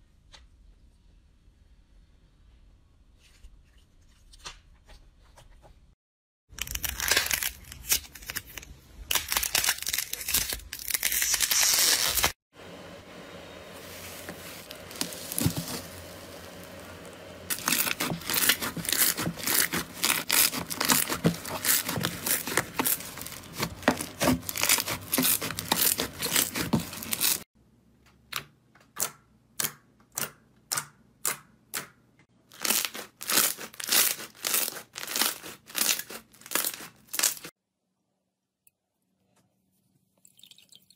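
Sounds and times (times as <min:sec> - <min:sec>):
slime crackling and popping: 0:17.5 - 0:27.4, 0:32.6 - 0:37.5.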